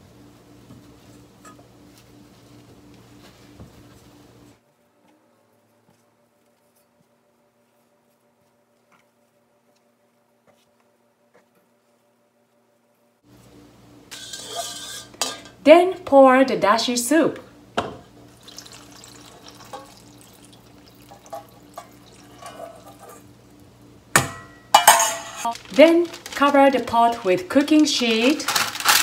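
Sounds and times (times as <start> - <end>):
faint steady hum: 0.0 - 29.0
soup trickling and dripping: 18.3 - 22.9.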